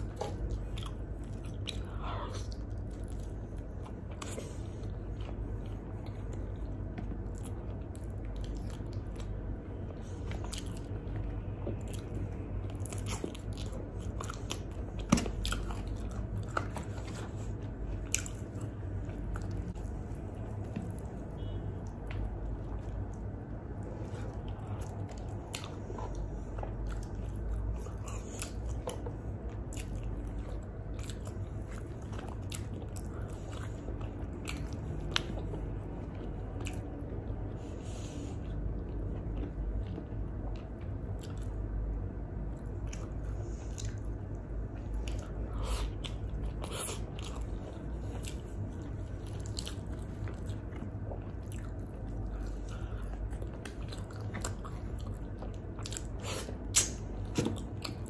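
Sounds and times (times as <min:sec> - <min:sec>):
chewing and biting food: 0:00.0 - 0:58.0
sharp mouth clicks: 0:56.3 - 0:57.5.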